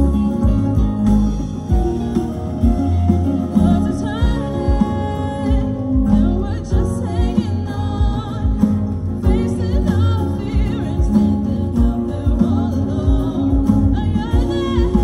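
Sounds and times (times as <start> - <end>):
live band playing: 0.0 - 15.0
person singing with vibrato: 0.0 - 15.0.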